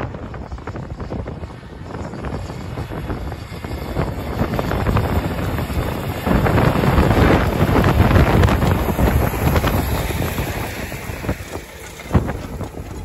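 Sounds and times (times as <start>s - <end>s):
wind noise on microphone: 0.0s - 13.0s
tractor engine under load: 0.3s - 13.0s
soil rushing through tillage tools: 2.8s - 13.0s.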